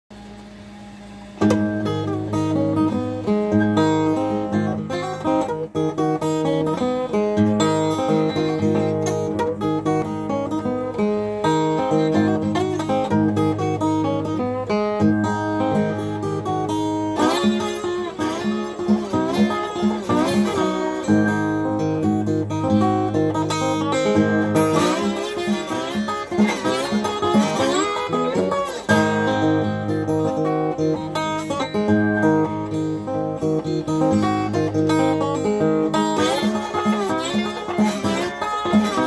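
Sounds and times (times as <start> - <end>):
slide acoustic guitar: 1.0 - 39.0.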